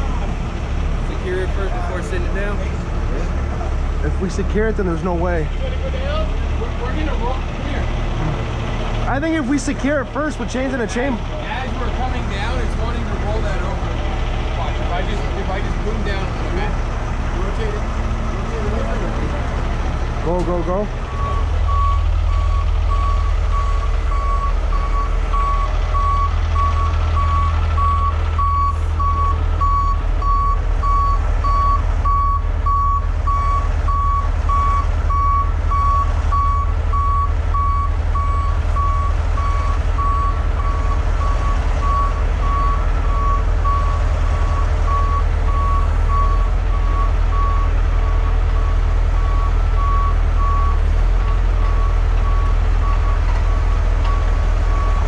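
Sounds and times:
diesel truck engine running: 0.0s - 55.0s
truck back-up alarm beeping: 20.1s - 55.0s.

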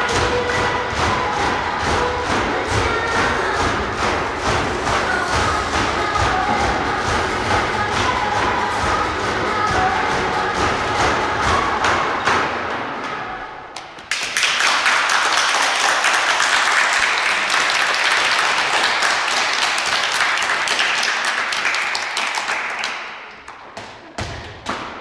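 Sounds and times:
crowd applause: 14.1s - 23.6s.

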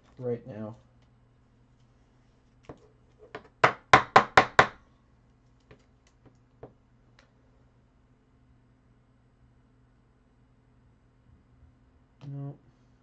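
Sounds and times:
faint steady hum: 0.0s - 13.0s
faint clicks and taps: 5.3s - 7.3s.

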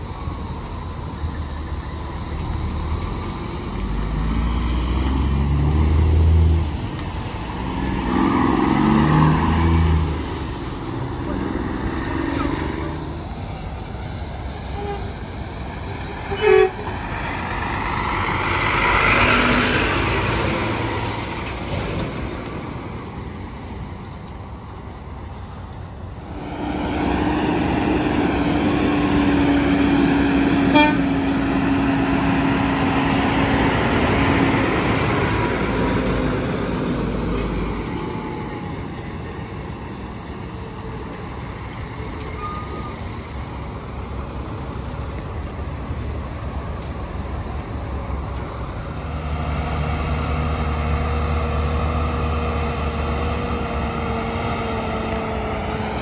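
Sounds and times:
trucks passing on highway: 0.0s - 56.0s
vehicle horn toot: 16.3s - 16.9s, 30.7s - 31.1s.

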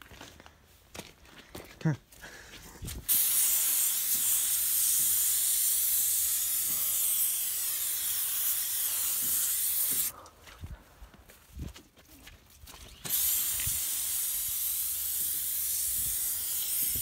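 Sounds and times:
aerosol can spraying: 3.1s - 10.1s, 13.0s - 17.0s.

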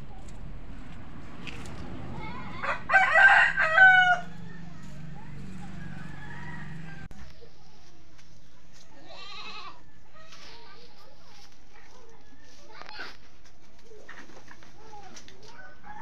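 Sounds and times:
rooster crowing: 2.6s - 4.8s, 5.6s - 7.1s.

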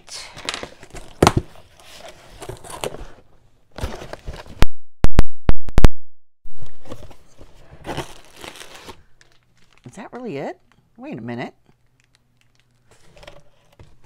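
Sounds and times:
cardboard flaps scraping and rustling: 0.7s - 4.6s.

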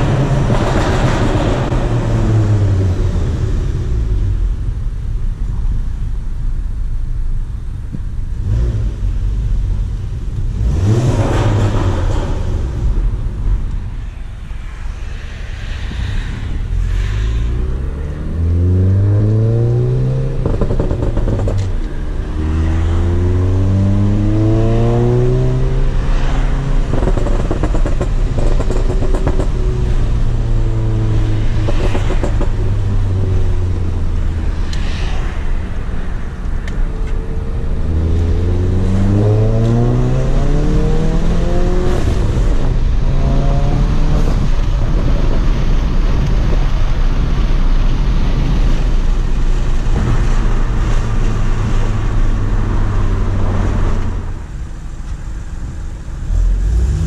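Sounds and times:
car engine accelerating: 14.7s - 54.4s.

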